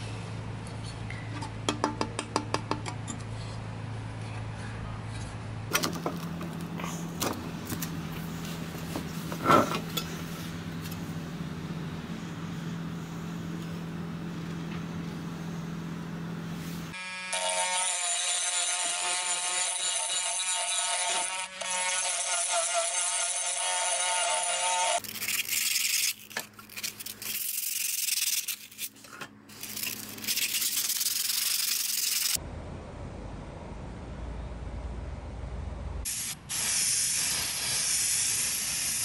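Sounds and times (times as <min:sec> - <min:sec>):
rotary tool grinding metal: 0:16.9 - 0:32.4
sandpaper rubbing on metal: 0:24.4 - 0:32.4.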